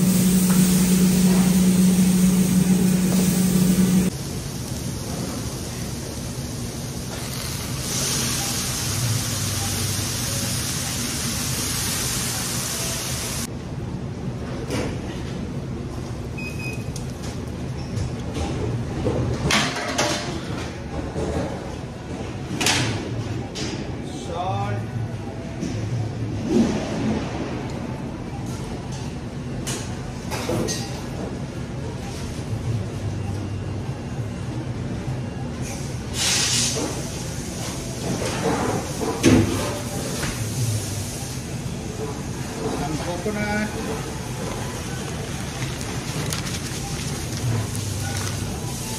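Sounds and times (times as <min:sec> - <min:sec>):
low steady rumble: 0:00.0 - 0:04.1
steady low hum: 0:00.0 - 0:04.6.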